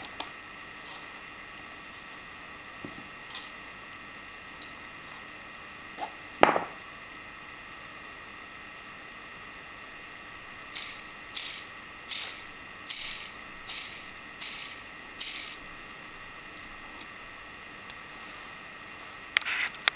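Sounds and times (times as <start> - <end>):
plastic ball bearing rattling whirrs: 10.8 - 15.6.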